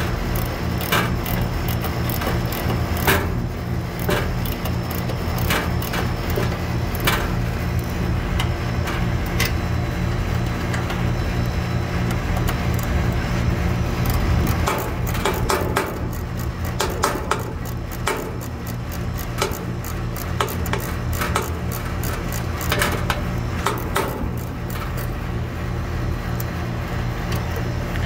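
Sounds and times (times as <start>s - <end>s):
low machine hum: 0.0s - 28.0s
wrench clicking on metal valves: 0.2s - 9.6s, 14.0s - 25.2s.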